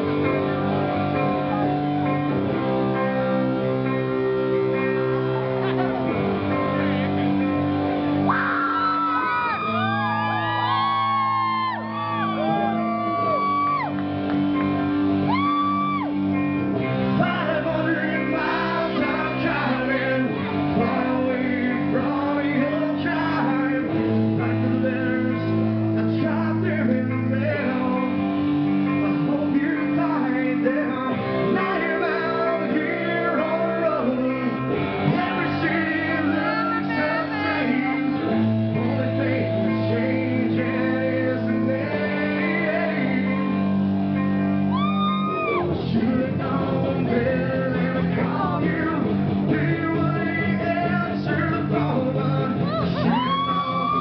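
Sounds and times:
held guitar chords: 0.0 - 54.0
live rock band playing: 0.0 - 54.0
man singing and shouting: 17.1 - 28.2, 28.9 - 43.7, 45.0 - 54.0.

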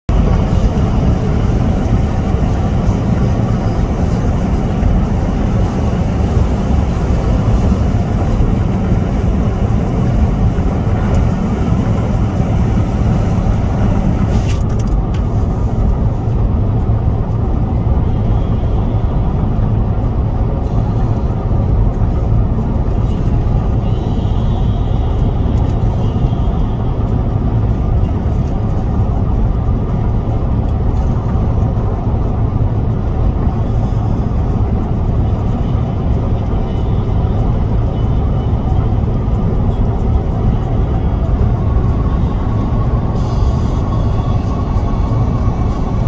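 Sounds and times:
low engine rumble: 0.0 - 46.0
road and tyre noise: 0.0 - 46.0.

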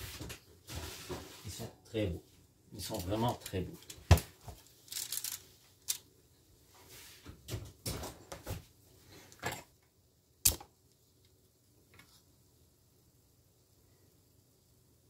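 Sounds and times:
metal baking sheet rustles and clicks: 2.8 - 6.1.

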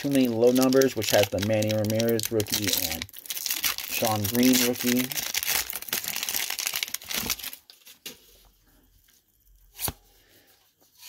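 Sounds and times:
foil wrapper crinkling and tearing: 0.0 - 8.0.

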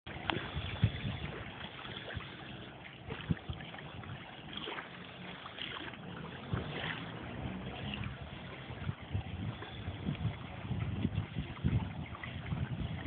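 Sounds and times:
wind noise: 0.1 - 4.8, 6.3 - 13.0
motorboat engine hum: 0.1 - 13.0
water wash: 0.1 - 13.0.

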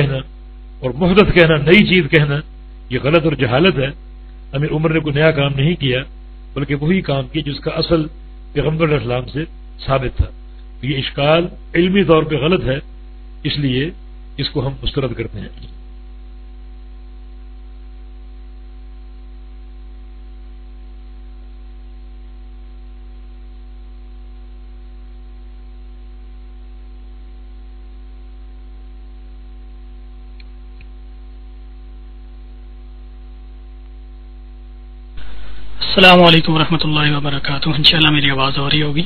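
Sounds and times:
electrical mains hum: 0.0 - 39.0.

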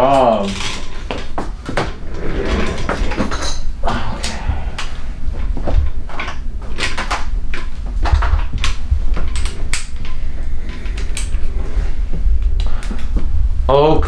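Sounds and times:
steady low rumble: 1.9 - 6.8.

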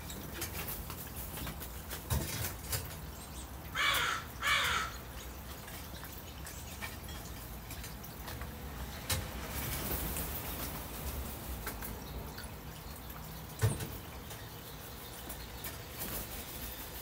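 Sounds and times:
crow cawing: 3.7 - 5.0.

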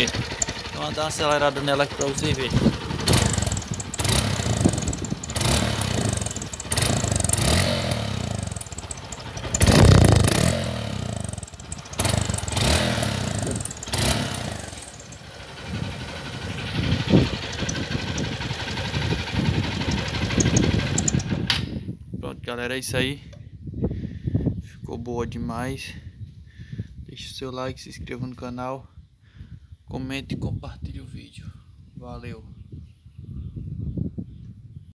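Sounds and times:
exhaust whistling: 0.0 - 21.5
motorcycle engine revving: 0.0 - 21.6.

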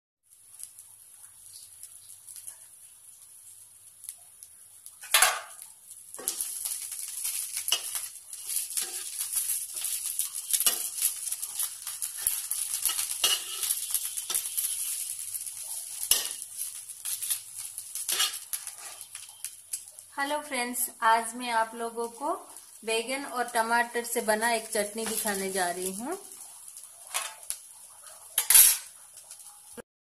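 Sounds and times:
vegetable slices sizzling in a pan: 0.2 - 29.8
metal spatula scraping a pan: 6.2 - 19.3, 27.1 - 27.5, 28.3 - 28.9.

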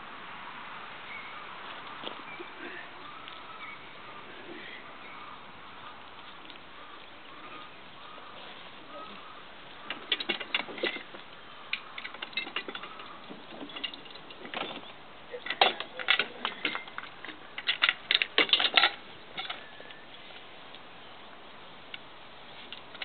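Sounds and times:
harness chains clinking and rattling: 9.9 - 11.2, 11.9 - 19.7.

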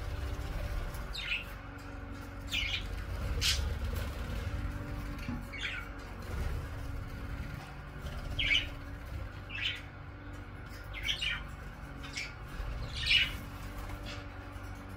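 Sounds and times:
budgerigars chirping: 1.0 - 1.5, 2.4 - 3.9, 5.5 - 6.0, 8.1 - 10.0, 10.7 - 14.4.

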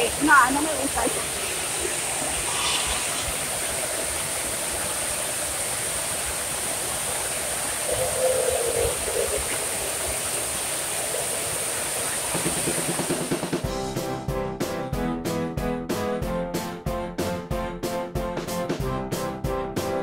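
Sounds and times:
fountains splashing water: 0.0 - 13.7.

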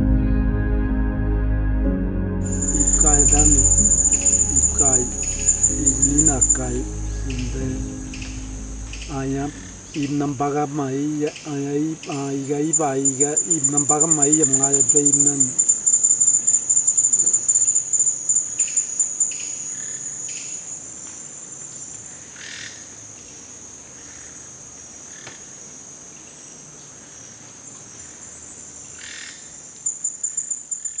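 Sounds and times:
short chirps of forest creatures: 2.4 - 10.1, 11.3 - 21.9, 29.8 - 31.0
insects shrilling in pulsing trill: 2.4 - 22.8, 29.0 - 31.0.

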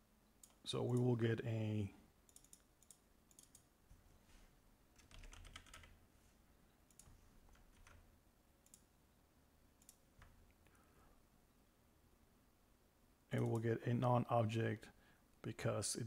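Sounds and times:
faint keyboard typing: 0.4 - 1.2, 2.2 - 4.1, 4.9 - 6.0, 6.8 - 8.9, 9.7 - 10.8, 13.3 - 13.7.

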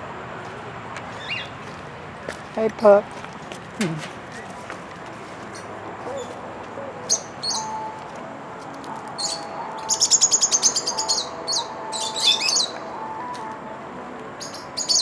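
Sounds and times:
birds chirping shrilly: 1.2 - 1.6, 5.5 - 7.9, 9.2 - 12.8, 14.4 - 15.0.

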